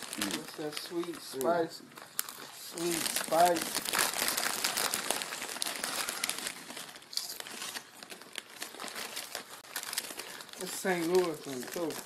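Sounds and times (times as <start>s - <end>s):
chip bag crinkling: 0.0s - 12.0s
chips being eaten: 5.0s - 7.8s.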